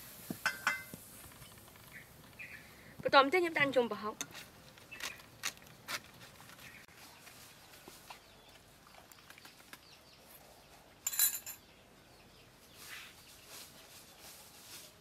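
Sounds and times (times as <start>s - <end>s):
metallic ladle clatter: 0.4s - 1.0s, 11.0s - 11.6s.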